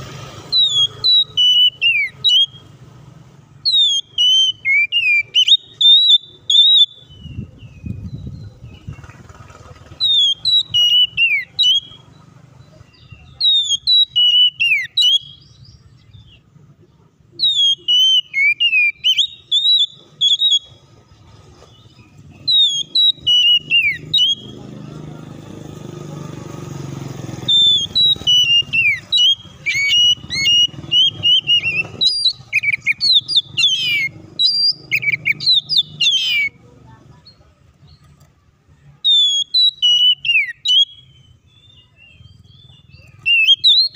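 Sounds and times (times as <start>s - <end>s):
bird singing whistled phrases: 0.5s - 2.7s, 3.6s - 8.9s, 9.9s - 12.1s, 12.9s - 16.4s, 17.4s - 20.9s, 21.7s - 24.6s, 27.3s - 36.6s, 39.0s - 43.9s.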